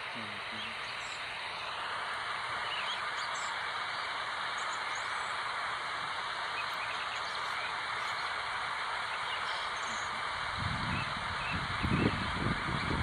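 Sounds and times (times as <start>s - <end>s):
faint bird chirps: 0.0s - 2.0s, 2.6s - 5.4s, 6.5s - 8.4s, 9.0s - 10.2s
outdoor background hiss: 0.0s - 13.0s.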